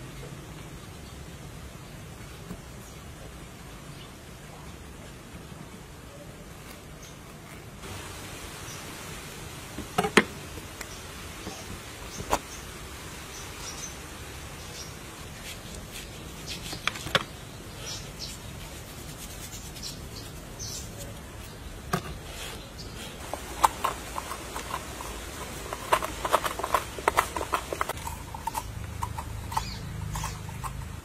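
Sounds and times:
faint steady hiss: 0.0s - 31.0s
knife cracking pumpkin rind: 23.2s - 31.0s.

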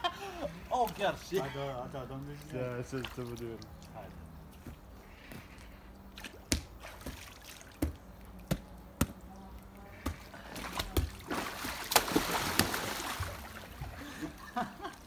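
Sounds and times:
water splashing in a pool: 2.1s - 4.2s, 6.1s - 8.9s, 9.5s - 15.0s.

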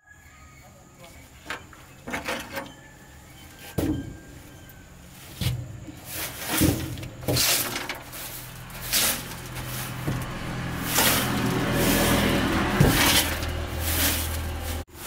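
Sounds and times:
broom sweeping metal: 5.0s - 15.0s.

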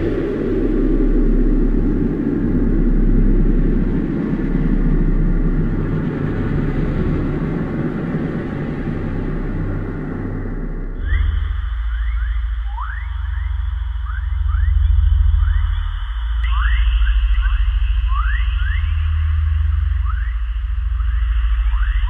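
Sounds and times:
vibrating plate hum: 0.0s - 22.0s.

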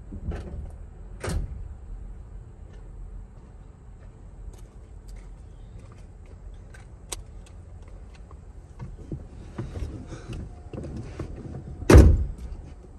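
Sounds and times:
low steady rumble in car: 0.0s - 12.9s
loud thump: 11.9s - 12.4s.

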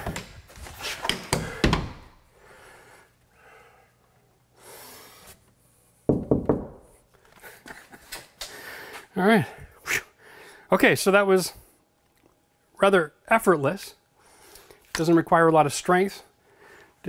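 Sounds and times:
wooden door knocks and thunks: 6.1s - 6.8s.

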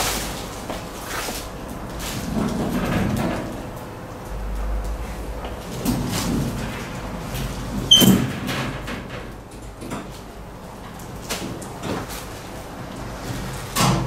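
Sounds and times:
casters rolling on tiled floor: 0.1s - 9.4s.

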